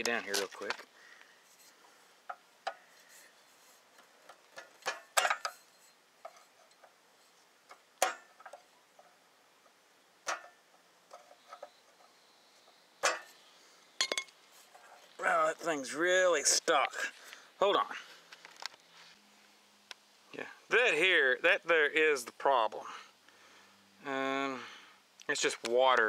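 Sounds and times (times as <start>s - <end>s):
metal hand tools clinking: 14.0s - 14.4s.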